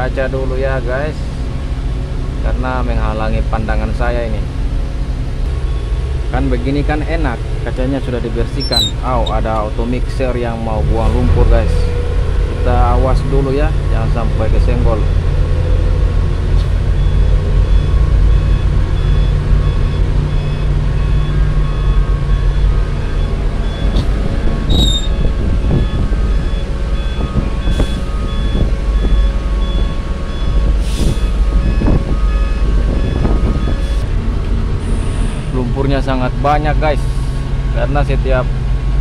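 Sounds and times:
excavator engine running: 0.0s - 39.0s
reversing alarm beeping: 8.4s - 9.5s, 16.7s - 34.1s.

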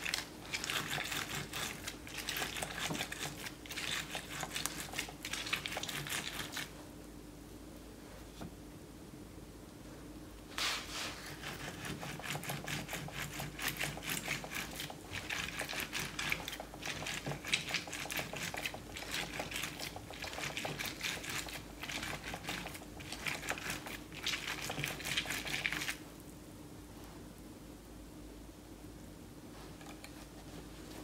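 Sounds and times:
orange grinding on citrus reamer: 0.0s - 6.7s, 11.3s - 26.0s.

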